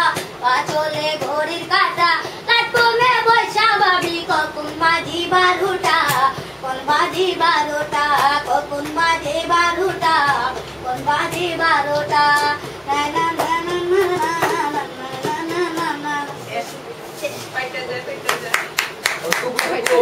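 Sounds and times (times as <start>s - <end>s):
child singing: 0.0s - 16.5s.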